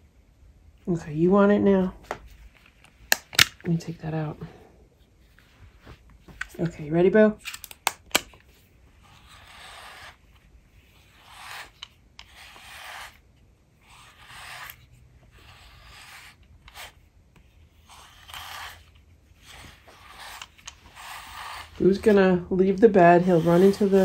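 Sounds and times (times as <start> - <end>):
brush raking through fur: 22.9 - 24.0.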